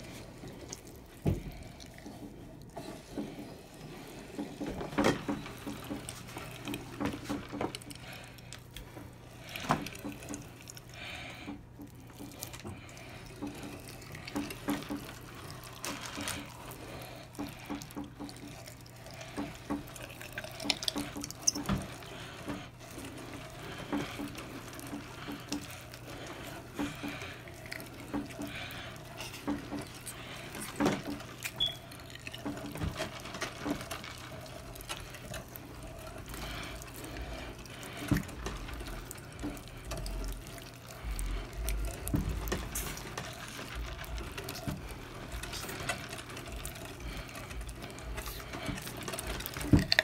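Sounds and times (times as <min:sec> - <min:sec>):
meat squishing through grinder: 0:00.0 - 0:50.0.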